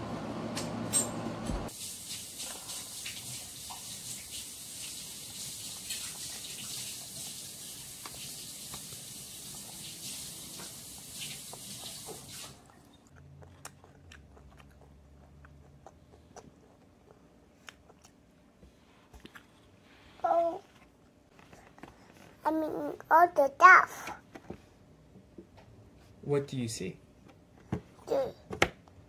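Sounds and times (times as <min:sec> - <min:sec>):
steady hiss: 0:01.7 - 0:12.6
child chewing: 0:05.0 - 0:23.0.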